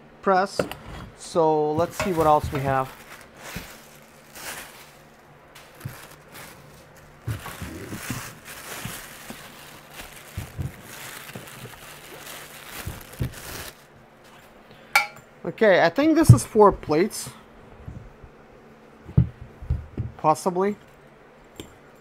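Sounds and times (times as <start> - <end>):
plastic packaging rustling: 1.7 - 14.0.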